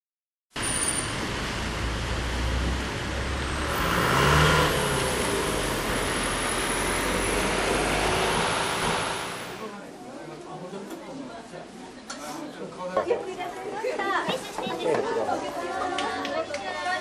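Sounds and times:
street traffic noise: 0.5s - 10.0s
car driving past close by: 1.3s - 9.7s.

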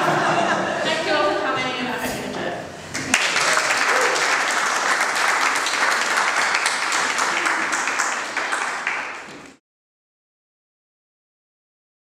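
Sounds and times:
small group applauding: 2.9s - 9.6s.

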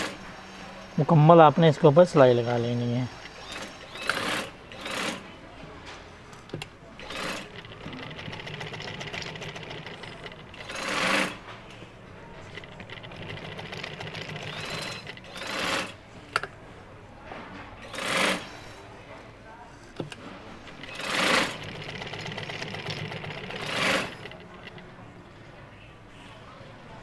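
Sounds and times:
sewing machine stitching: 0.0s - 0.2s, 3.1s - 5.3s, 6.6s - 11.4s, 12.4s - 16.0s, 17.8s - 18.8s, 20.7s - 24.8s.

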